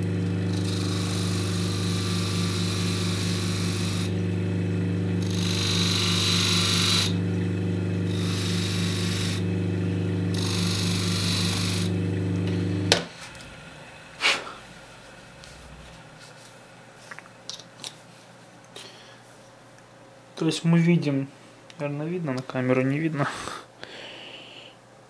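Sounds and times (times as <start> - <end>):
buffing machine motor humming: 0.0 - 14.2
cutter rubbing on polishing wheel: 0.5 - 4.4, 5.2 - 7.2, 8.0 - 9.6, 10.2 - 12.9.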